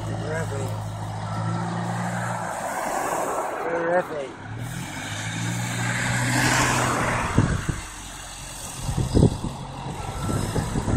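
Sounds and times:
car passing: 0.0 - 10.9
diesel engine running: 7.3 - 10.9.

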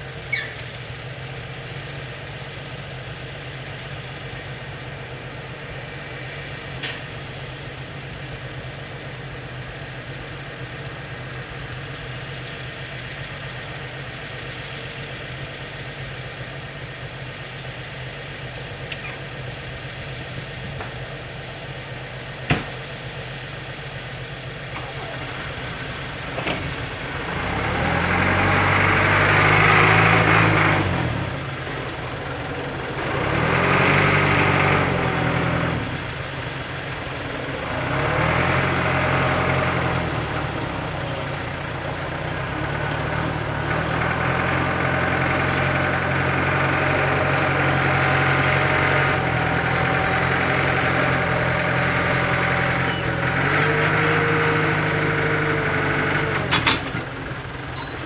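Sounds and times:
diesel engine idling: 0.0 - 58.0
diesel engine revving: 0.0 - 58.0.

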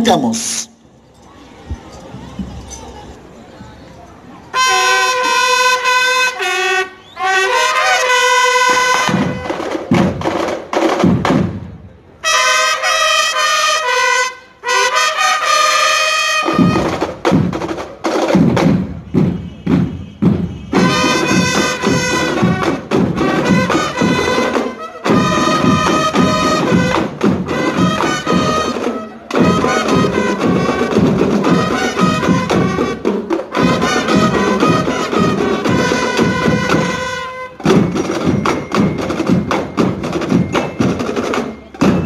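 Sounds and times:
trumpets playing held chords: 4.5 - 9.7, 12.2 - 16.9, 20.6 - 37.7
snare drum strokes: 16.4 - 42.0.

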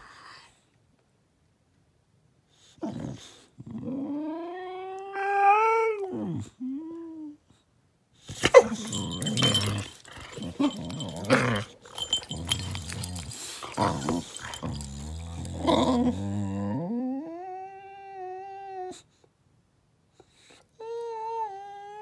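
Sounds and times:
dog whining: 8.4 - 19.0
dog growling: 8.5 - 17.3
scuffling: 8.7 - 15.5.

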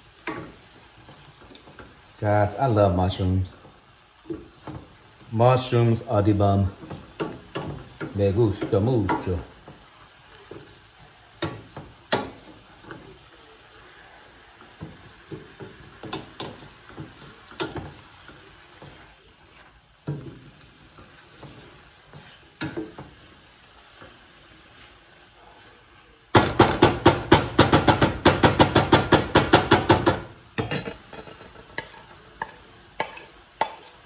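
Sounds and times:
mushrooms sizzling in a pan: 0.0 - 34.0
wooden spoon scraping a pan: 0.2 - 26.0, 30.6 - 34.0
spoon knocking against pan: 11.4 - 13.0, 14.8 - 18.0, 26.4 - 33.9.

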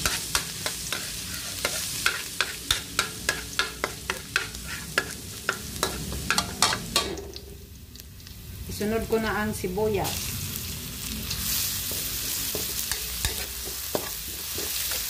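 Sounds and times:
spatula scraping a metal pan: 0.0 - 6.8, 11.4 - 15.0
garlic sizzling in oil: 0.0 - 15.0.

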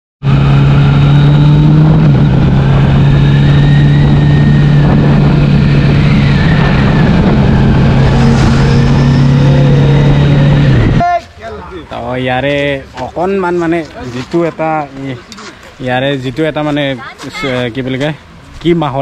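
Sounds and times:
motorcycle engine cruising: 0.2 - 11.0
rushing wind and road noise: 0.2 - 19.0.

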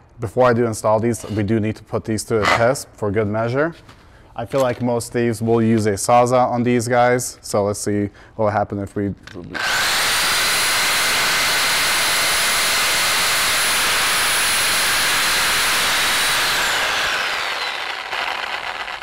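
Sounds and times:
reciprocating saw cutting metal: 9.6 - 19.0.

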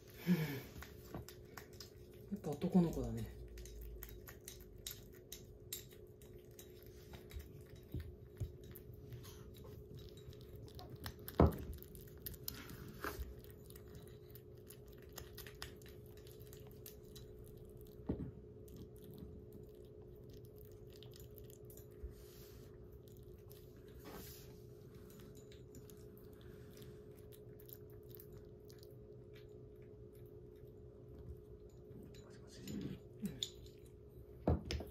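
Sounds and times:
kitten chewing clicks: 0.8 - 22.0.

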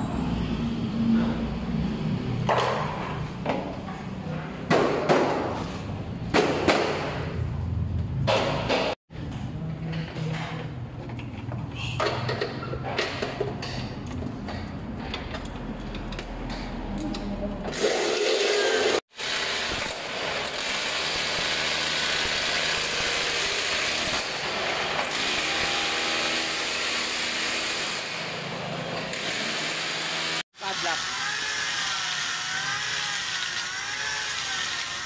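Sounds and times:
power tool running: 17.7 - 35.0.

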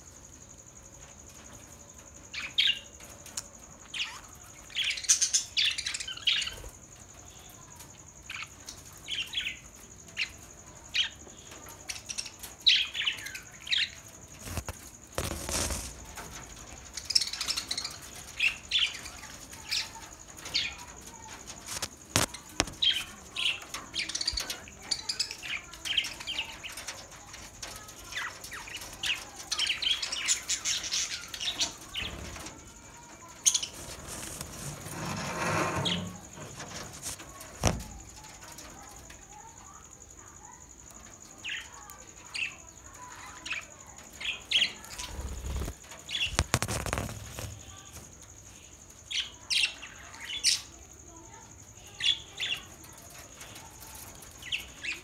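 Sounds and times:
wing-flapping rush: 14.4 - 16.2, 45.0 - 47.6.

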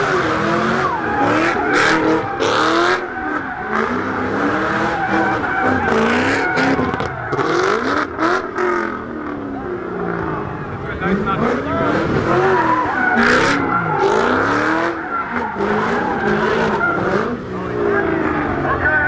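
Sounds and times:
car engine revving: 0.0 - 19.0
tyre squeal: 0.5 - 8.0, 12.3 - 17.4.

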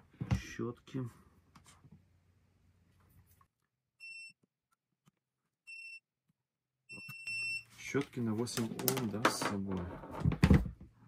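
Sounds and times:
multimeter beep: 4.0 - 4.4, 5.7 - 6.1, 6.9 - 7.7.

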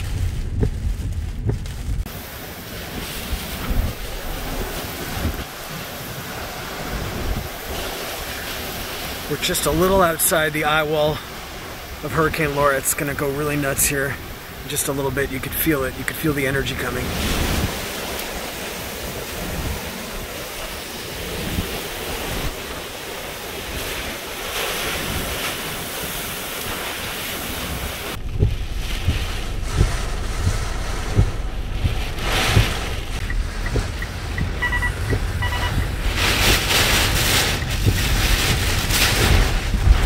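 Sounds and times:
wind buffeting microphone: 0.0 - 10.0, 14.0 - 40.0
deep storm rumble: 0.0 - 40.0
driving rain: 0.0 - 40.0
strong wind: 0.0 - 40.0
windshield wipers knocking: 0.3 - 1.9, 28.2 - 40.0.

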